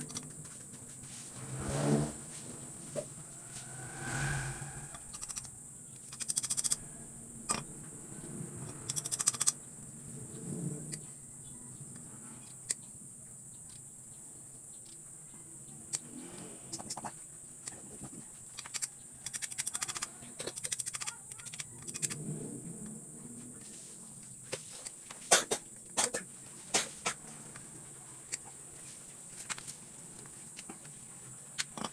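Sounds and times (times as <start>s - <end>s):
hand tool rapid metallic clicking: 18.6s - 22.1s.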